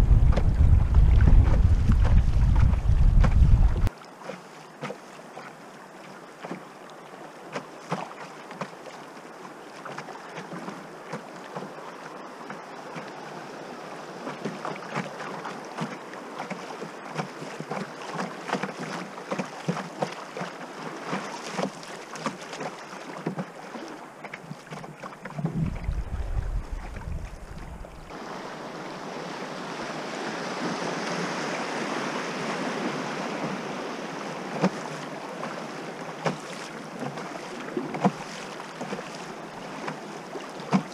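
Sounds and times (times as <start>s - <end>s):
wind buffeting microphone: 0.0s - 3.9s, 25.3s - 28.1s
water lapping against hull: 0.0s - 40.9s
river current rushing: 25.2s - 40.9s.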